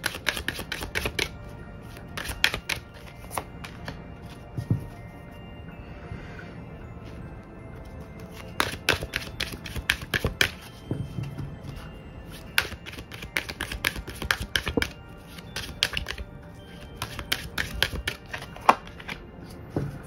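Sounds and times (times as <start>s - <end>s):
cards shuffling: 0.0s - 1.3s, 1.9s - 4.9s, 8.2s - 10.8s, 11.6s - 20.0s.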